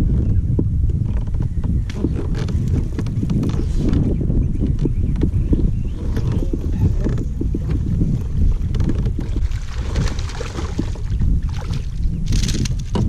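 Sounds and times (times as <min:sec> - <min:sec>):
wind buffeting microphone: 0:00.0 - 0:13.0
fish splashing in water: 0:09.3 - 0:12.6.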